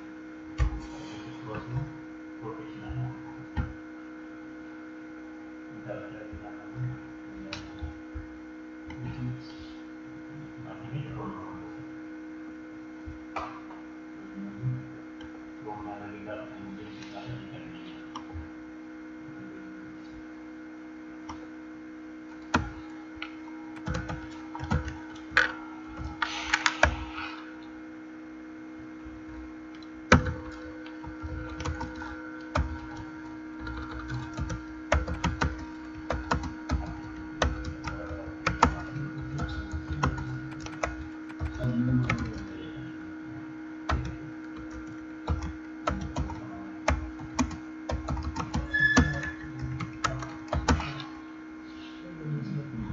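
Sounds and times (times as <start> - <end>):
low electrical hum: 0.0 - 52.9
keyboard typing clicks: 22.4 - 27.0, 29.8 - 42.5, 43.9 - 51.0.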